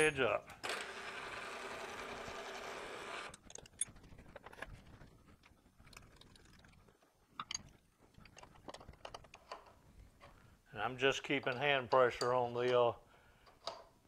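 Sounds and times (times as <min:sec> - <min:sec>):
faint metal clicks and scrapes: 0:03.4 - 0:10.5.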